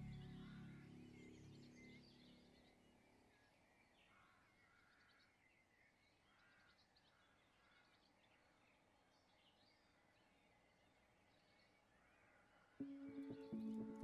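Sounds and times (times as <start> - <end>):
soft background music: 0.0 - 2.8, 12.8 - 14.0
faint birdsong chirps and trills: 0.0 - 14.0.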